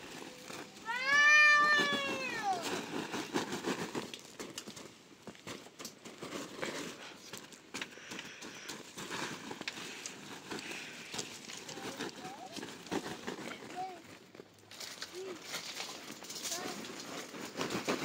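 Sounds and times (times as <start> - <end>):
rustling and light clicks: 0.0 - 18.0
cat meowing: 0.9 - 2.6.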